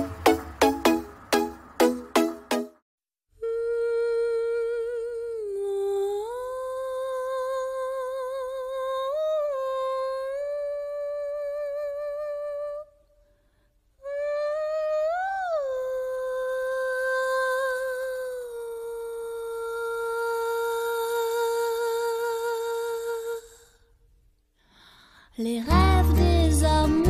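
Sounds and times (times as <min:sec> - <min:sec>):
person humming melody: 0:03.4 - 0:09.4.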